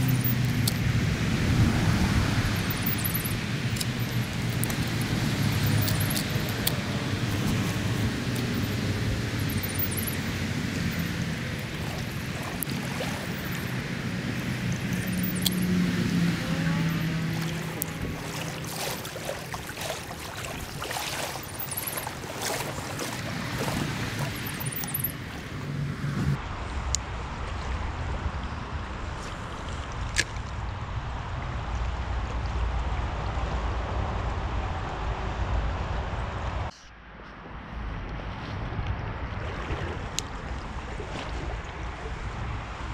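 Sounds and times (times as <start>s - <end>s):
small stream flowing: 0.0s - 26.4s, 39.2s - 42.9s
low steady hum: 0.0s - 29.7s
wind buffeting microphone: 0.0s - 36.7s.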